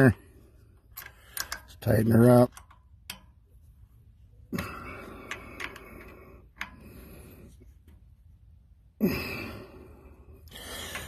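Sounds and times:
wrench metal clicks: 0.8 - 3.5, 5.2 - 6.8.

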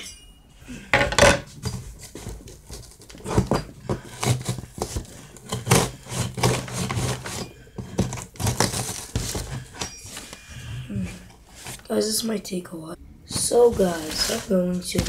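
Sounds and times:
cardboard box tearing and scraping: 2.0 - 10.4, 13.3 - 15.0.

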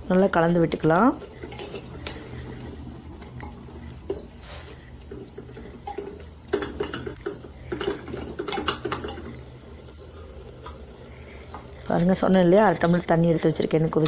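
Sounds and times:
steady low hum: 0.0 - 14.0
spatula scraping and knocking pot: 0.2 - 9.4.

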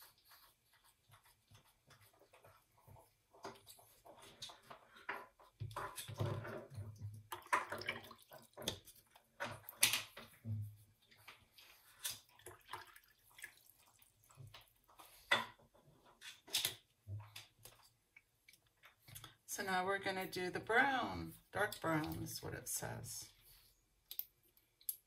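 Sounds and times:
brush wiping on paper towel: 0.0 - 4.1.

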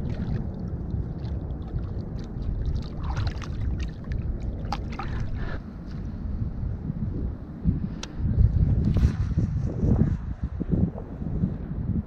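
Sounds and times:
small splashes: 0.0 - 5.6
water lapping against concrete: 0.0 - 5.7
wind rumble on microphone: 0.0 - 12.0.

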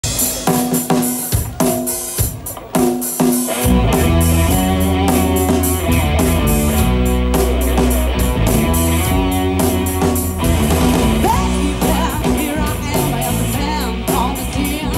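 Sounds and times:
drum kit hits: 0.0 - 14.4
electric guitar chords: 3.2 - 14.9
bass guitar: 3.5 - 14.9.

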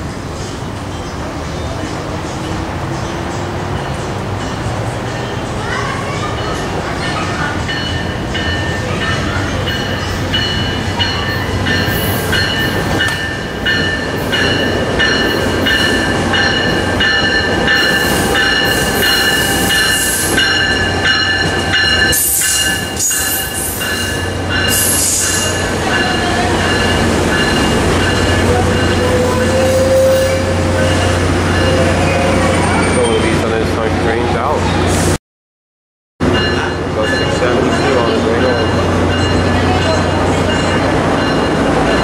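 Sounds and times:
train engine rumble: 0.0 - 35.2, 36.2 - 42.0
train wheels on rails: 0.0 - 35.2, 36.2 - 42.0
bell ringing: 6.4 - 33.2, 36.3 - 42.0.

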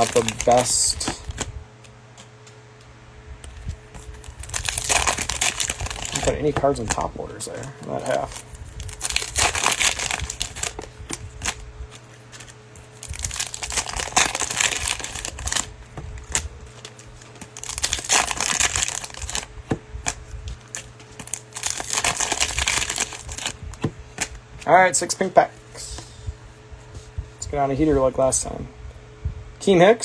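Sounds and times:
plastic wrappers crinkling: 0.0 - 1.4, 3.9 - 24.4.

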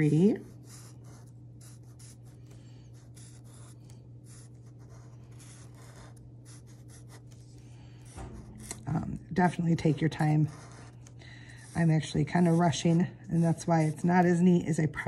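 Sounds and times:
marker drawing on paper: 0.0 - 7.6, 9.4 - 11.0, 11.6 - 14.4
steady low hum: 0.0 - 15.0.

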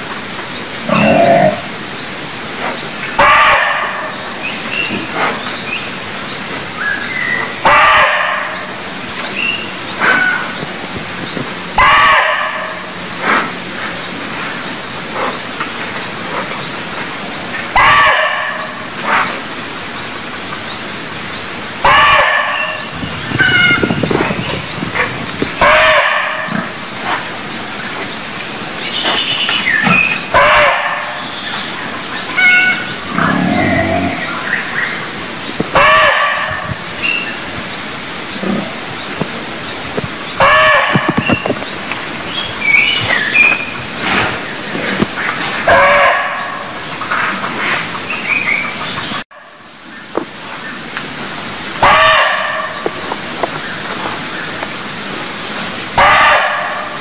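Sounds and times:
deer barking: 3.2 - 4.0, 21.8 - 22.8, 45.7 - 46.5, 51.8 - 52.8, 56.0 - 57.0.

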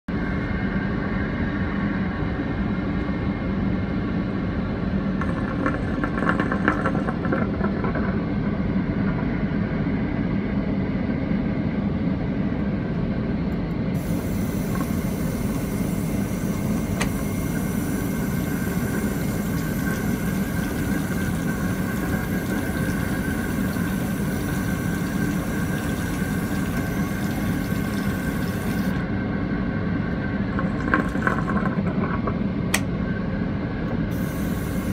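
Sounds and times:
suction drain hiss: 14.0 - 29.0, 34.1 - 34.9
water running into basin: 14.0 - 29.0, 34.1 - 34.9.

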